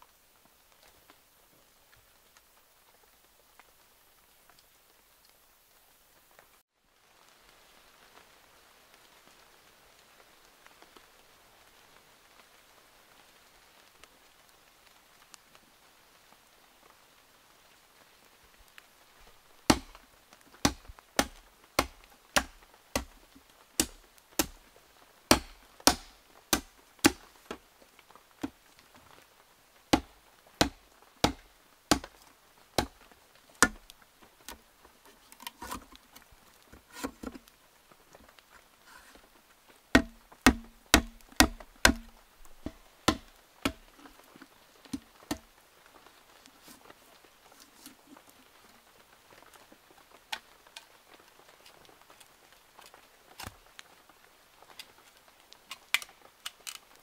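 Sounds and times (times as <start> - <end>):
machete chopping bamboo: 19.7 - 20.0, 20.6 - 23.2, 23.8 - 24.6, 25.3 - 27.6, 29.9 - 32.2, 32.8 - 33.0, 33.6 - 33.8, 40.0 - 44.0
soft irregular knocks: 19.7 - 20.0, 20.6 - 23.2, 40.0 - 44.0.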